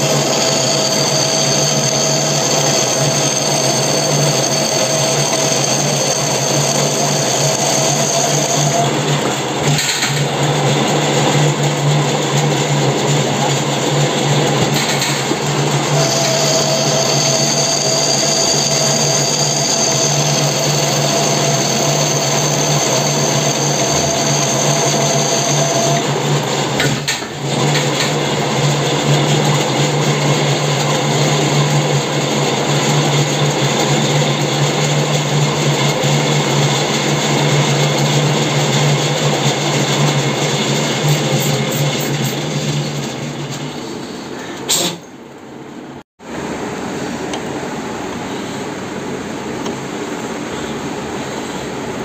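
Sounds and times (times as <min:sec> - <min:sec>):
thin high whine: 0:00.0 - 0:09.1, 0:15.4 - 0:26.2
metal lathe humming: 0:00.0 - 0:26.8, 0:27.4 - 0:44.1
boring bar cutting metal: 0:00.0 - 0:43.8.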